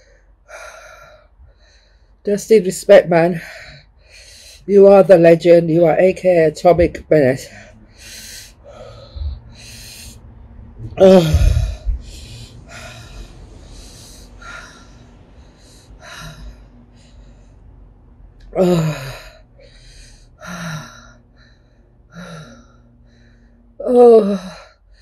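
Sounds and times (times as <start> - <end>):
woman gasping and breathing hard: 11.0 - 15.0, 18.6 - 21.2, 23.8 - 24.7.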